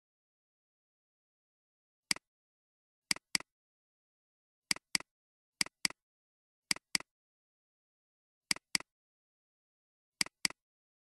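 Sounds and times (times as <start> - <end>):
mouse button double-clicks: 10.2 - 10.6.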